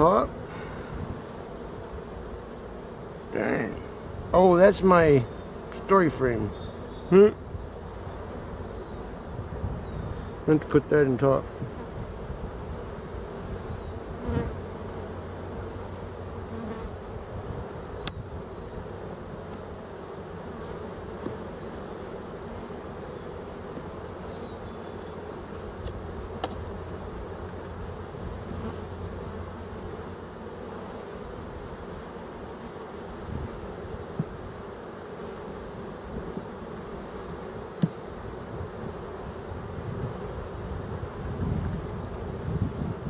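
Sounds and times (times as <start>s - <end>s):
bees buzzing: 0.0s - 43.0s
hive tool clicks and knocks: 25.8s - 26.7s.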